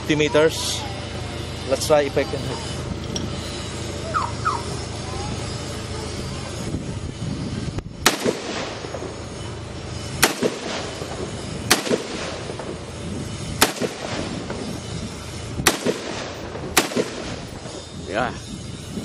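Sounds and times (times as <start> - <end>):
rifle shots with echo: 8.0 - 9.1, 10.2 - 12.8, 13.6 - 14.7, 15.6 - 17.8.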